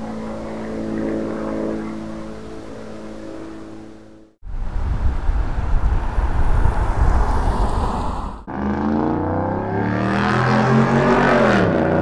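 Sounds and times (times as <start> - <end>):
car driving past: 5.9 - 12.0.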